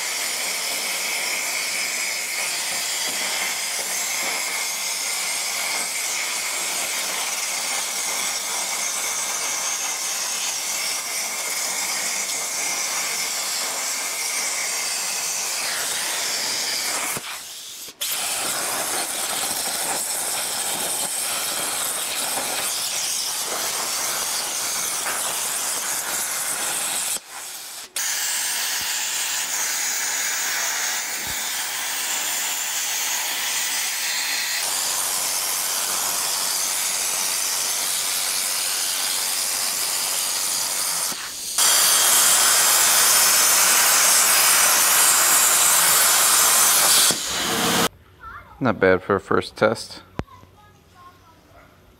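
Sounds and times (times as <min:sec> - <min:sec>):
plasma cutter hissing: 0:00.0 - 0:47.9.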